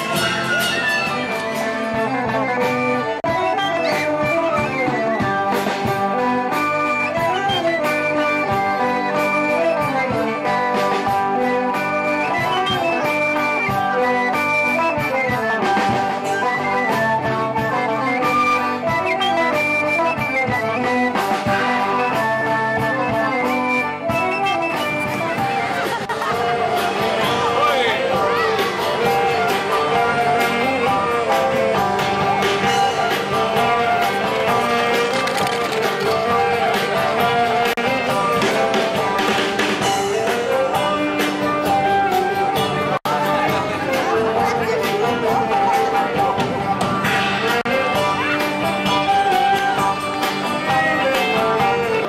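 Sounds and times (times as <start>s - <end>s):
lively band music with horns: 0.0s - 52.0s
plucked strings: 24.6s - 41.5s.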